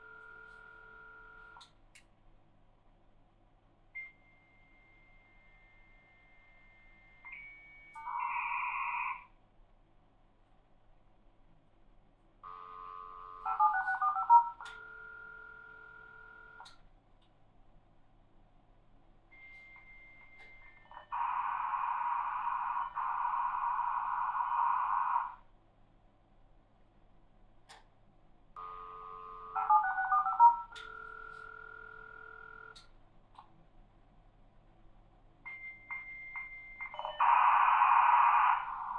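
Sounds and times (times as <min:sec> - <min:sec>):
dial tone: 0:00.0 - 0:01.6, 0:12.5 - 0:16.6, 0:28.6 - 0:32.8
phone ringing tone: 0:00.0 - 0:01.6, 0:07.3 - 0:09.3, 0:12.4 - 0:16.6, 0:28.6 - 0:32.8, 0:35.5 - 0:38.9.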